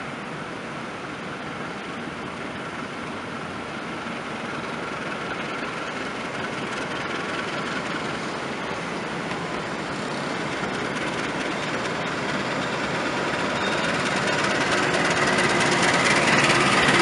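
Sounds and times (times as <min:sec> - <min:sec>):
diesel locomotive engine drone: 0:00.0 - 0:17.0
rail rumble: 0:00.0 - 0:17.0.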